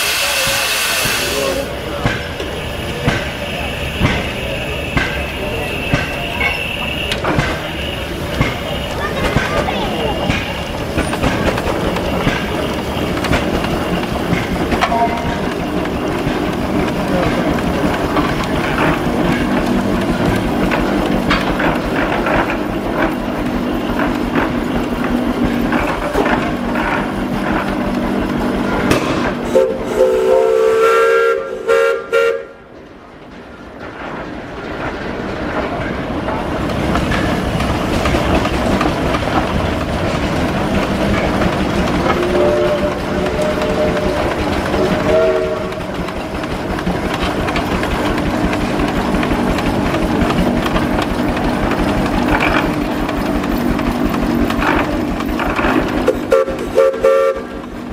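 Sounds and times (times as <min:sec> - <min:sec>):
steam traction engine running: 0:00.0 - 0:57.9
steam whistle blast: 0:29.5 - 0:32.6, 0:45.1 - 0:45.7, 0:56.3 - 0:57.5.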